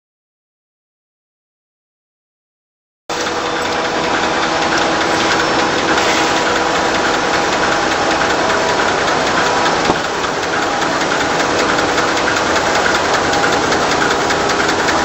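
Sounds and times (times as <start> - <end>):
fast mechanical clatter: 3.1 - 15.0
steady machine hum: 3.1 - 15.0.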